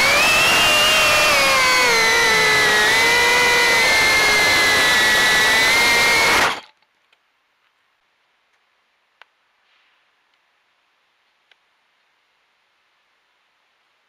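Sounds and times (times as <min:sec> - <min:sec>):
drone motors whining: 0:00.0 - 0:06.7.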